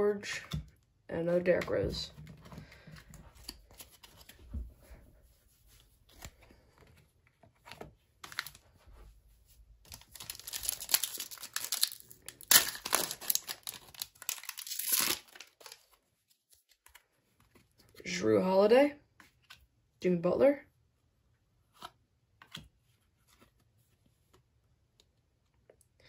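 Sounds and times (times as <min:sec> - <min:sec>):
foil wrapper tearing and crinkling: 0:09.9 - 0:15.9.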